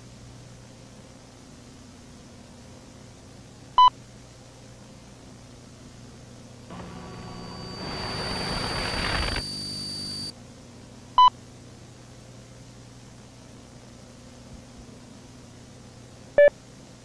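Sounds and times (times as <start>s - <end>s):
high thin tone: 6.7s - 10.3s
hissing droning swell: 6.7s - 10.3s
low steady hum: 6.7s - 10.3s.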